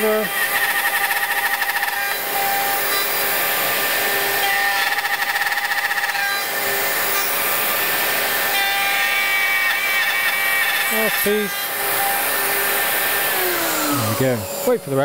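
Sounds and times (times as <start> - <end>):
router cutting wood: 0.0 - 15.0
dust extractor running: 10.9 - 15.0.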